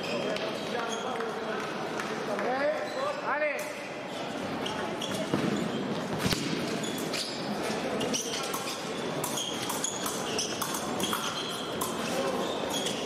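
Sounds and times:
voices in echoing hall: 0.0 - 13.0
rubber soles squeaking: 4.6 - 13.0.

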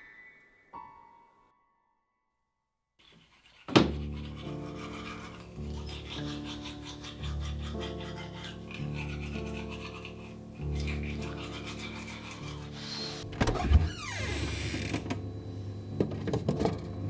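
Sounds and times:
toothbrush scrubbing teeth: 3.0 - 13.3
low sustained music chords: 14.2 - 17.0.

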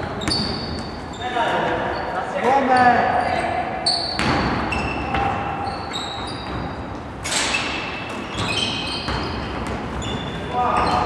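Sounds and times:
sneakers squeaking on gym floor: 0.0 - 11.0.

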